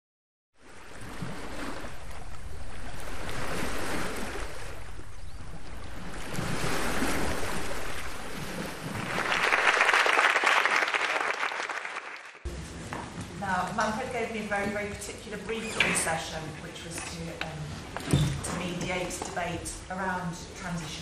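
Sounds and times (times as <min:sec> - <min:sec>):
surf washing up beach: 0:00.6 - 0:10.4.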